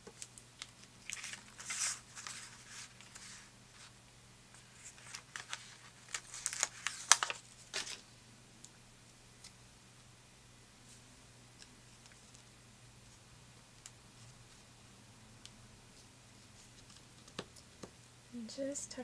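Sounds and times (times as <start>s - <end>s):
paper sticker sheet crinkling: 0.1s - 3.9s, 4.5s - 8.0s.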